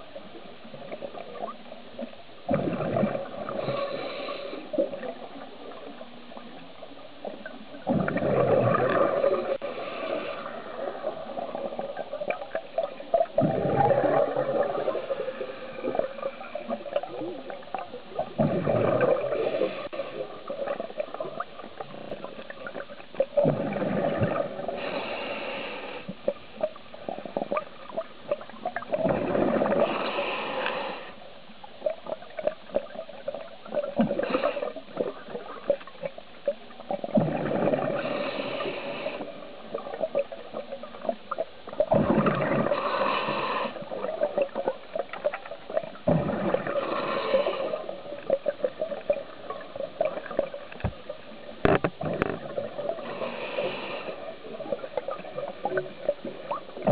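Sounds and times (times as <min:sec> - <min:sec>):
bubbling crackle: 0:00.0 - 0:25.3, 0:26.2 - 0:56.9
exhaled bubbles gurgling: 0:00.0 - 0:56.9
diver breathing through regulator: 0:03.5 - 0:04.8, 0:24.7 - 0:26.2, 0:29.3 - 0:31.2, 0:37.8 - 0:39.4, 0:42.5 - 0:44.0, 0:46.3 - 0:48.0, 0:53.0 - 0:54.4.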